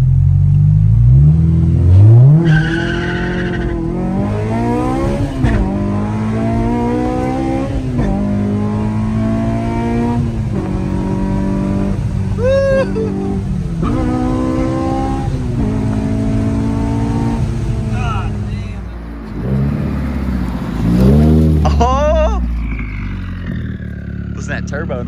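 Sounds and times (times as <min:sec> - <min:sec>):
car engine accelerating: 0:00.0 - 0:25.0
tire squeal: 0:02.2 - 0:03.8, 0:22.5 - 0:24.2.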